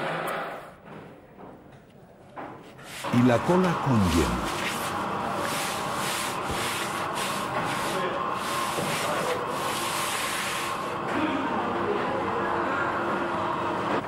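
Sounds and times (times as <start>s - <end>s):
steady hum: 2.8s - 11.0s.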